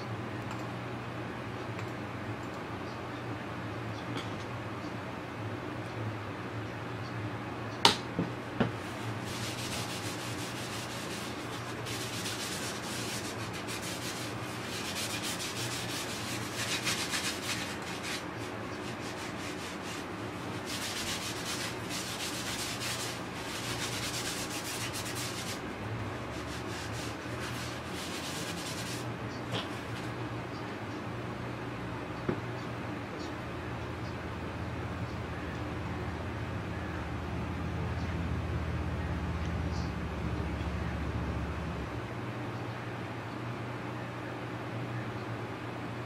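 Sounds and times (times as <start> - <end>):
scouring pad scrubbing: 8.8 - 30.2
low hum: 34.3 - 42.6.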